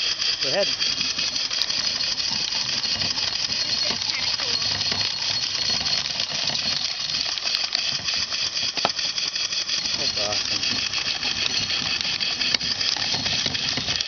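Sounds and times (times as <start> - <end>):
corn sheller rattling: 0.0 - 14.0
steam engine hissing: 7.6 - 14.0.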